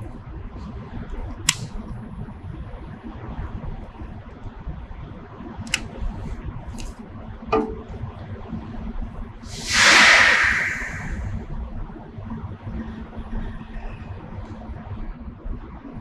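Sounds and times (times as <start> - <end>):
loud hiss: 9.5 - 11.4.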